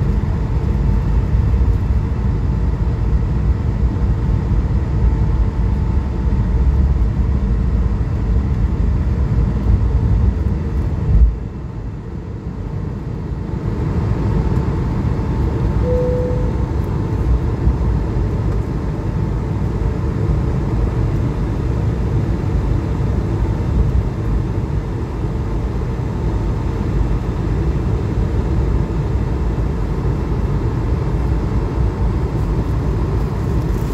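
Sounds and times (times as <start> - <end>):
short cabin tone: 15.8 - 17.0.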